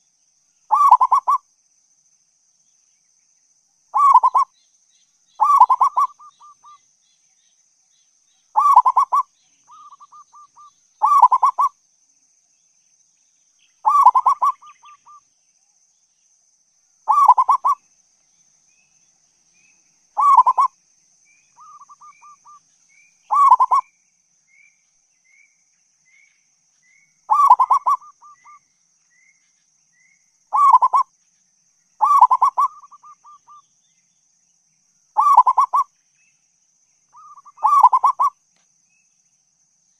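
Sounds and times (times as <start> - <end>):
dove cooing: 0.7 - 1.4, 4.0 - 4.5, 5.4 - 6.8, 8.6 - 11.7, 13.8 - 15.2, 17.1 - 17.8, 20.2 - 20.7, 23.3 - 23.8, 27.3 - 28.6, 30.5 - 31.1, 32.0 - 33.6, 35.2 - 35.8, 37.2 - 38.3.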